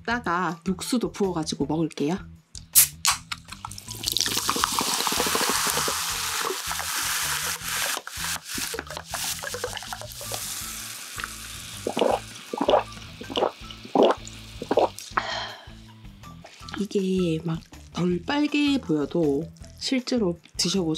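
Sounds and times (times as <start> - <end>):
person gulping: 3.6 - 6.9, 8.7 - 10.3, 11.2 - 15.5
soda fizzing in a glass: 3.6 - 15.2
soda pouring into a glass: 3.6 - 15.2.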